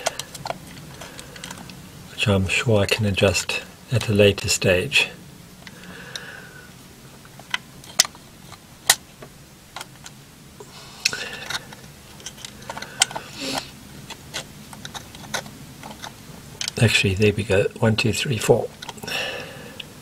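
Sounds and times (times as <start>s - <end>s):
handling rustle: 7.2s - 17.4s.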